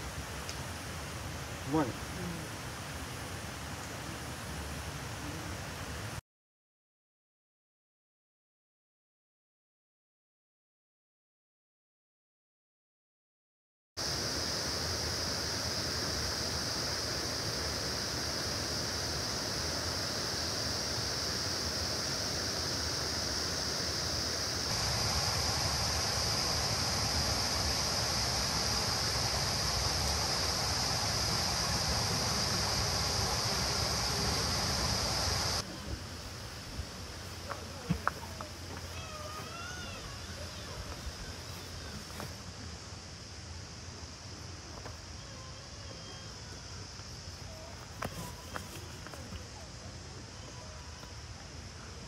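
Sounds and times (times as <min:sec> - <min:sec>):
mountain stream rushing: 0:14.0 - 0:39.4.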